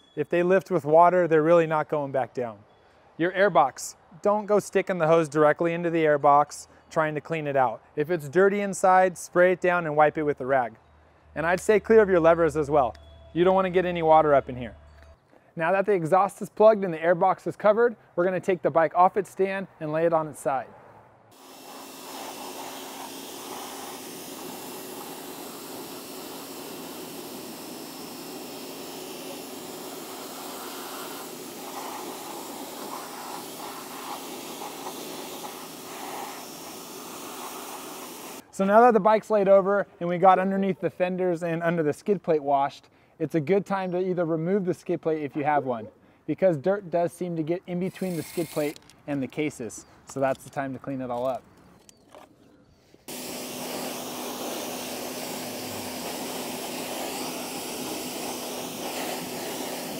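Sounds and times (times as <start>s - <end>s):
pressure washer spraying: 21.3s - 38.4s, 48.0s - 48.8s, 53.1s - 59.9s.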